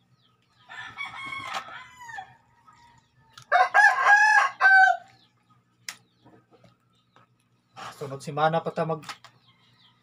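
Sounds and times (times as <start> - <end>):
rooster crowing: 0.6 - 5.2.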